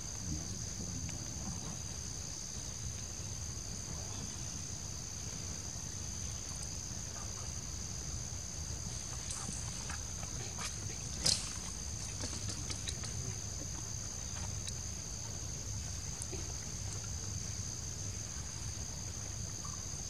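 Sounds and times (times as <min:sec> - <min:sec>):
high-pitched insect chorus: 0:00.0 - 0:20.0.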